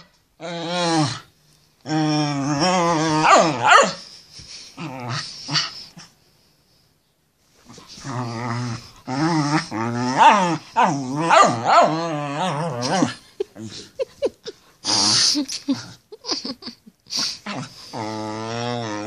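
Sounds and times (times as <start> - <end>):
dog growling: 0.0 - 3.7, 4.8 - 6.0, 7.9 - 14.0, 14.8 - 16.0, 17.4 - 19.0
dog growl-whining: 0.0 - 4.0, 4.8 - 6.0, 7.8 - 14.0, 14.8 - 16.0, 17.4 - 19.0.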